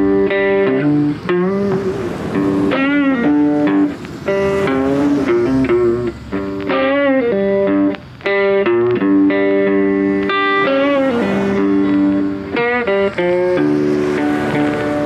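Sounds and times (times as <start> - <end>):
guitar playing long held notes: 0.0 - 15.0.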